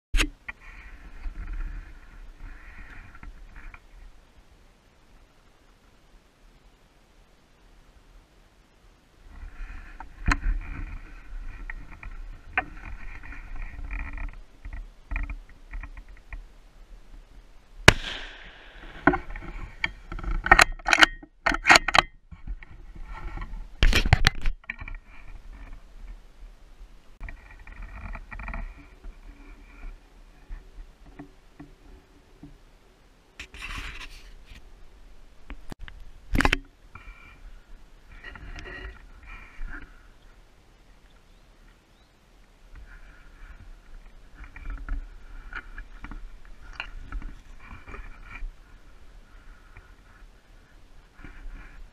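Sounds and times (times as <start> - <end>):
scraping and rubbing of rifle: 0.5 - 4.0, 9.3 - 16.4, 17.9 - 26.2, 27.2 - 31.3, 33.4 - 34.7, 36.4 - 37.4, 38.1 - 40.1, 42.8 - 51.9.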